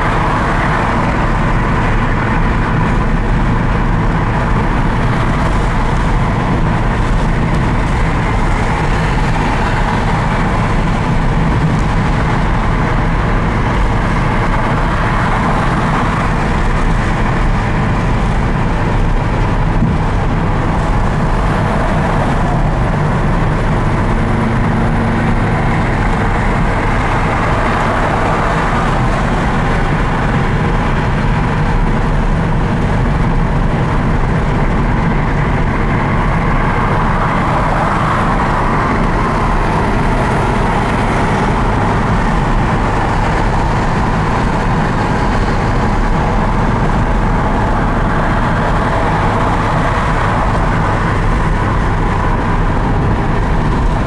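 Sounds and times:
car engine running: 0.0 - 54.0
tyre and road noise: 0.0 - 54.0.

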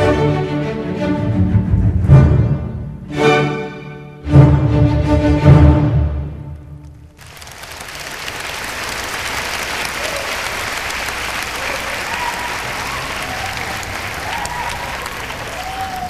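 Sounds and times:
music: 0.0 - 7.1
audience applauding: 7.0 - 16.0
people cheering: 7.2 - 16.0.

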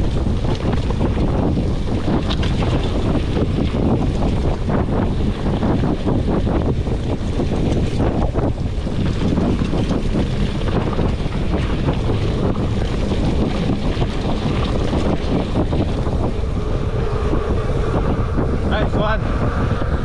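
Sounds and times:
bike rattling and knocking: 0.0 - 16.3
wind buffeting microphone: 0.0 - 20.0.

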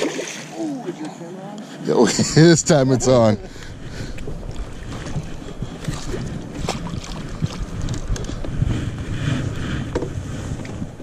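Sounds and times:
wind noise on microphone: 3.0 - 11.0.

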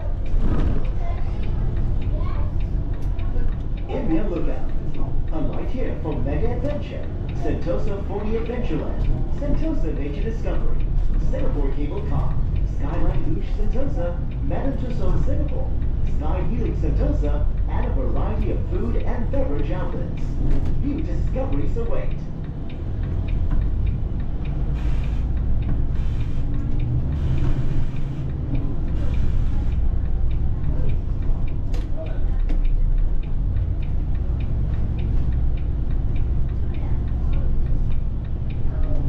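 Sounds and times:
bus engine rumble: 0.0 - 39.0
turn indicator ticking: 0.0 - 39.0
air brake hiss: 24.8 - 25.3.

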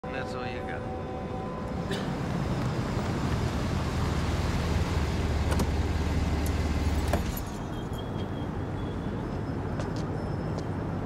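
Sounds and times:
street noise: 0.0 - 11.0
engine and tyre rumble: 1.6 - 11.0.

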